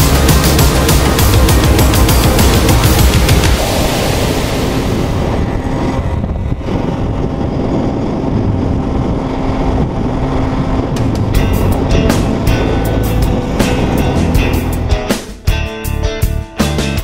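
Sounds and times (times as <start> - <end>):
two-stroke moped engine: 0.0 - 4.0
wind rush on microphone: 0.0 - 16.1.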